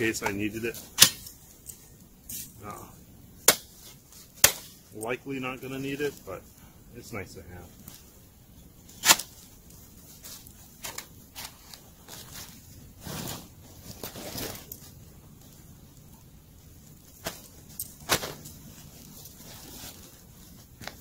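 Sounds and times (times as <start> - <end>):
gear rustling: 8.9 - 21.0.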